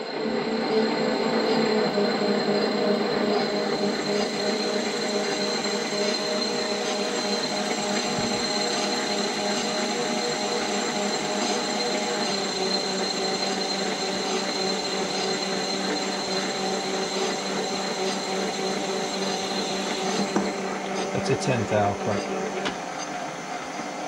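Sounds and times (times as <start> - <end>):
metal lathe humming and whining: 0.0 - 24.0.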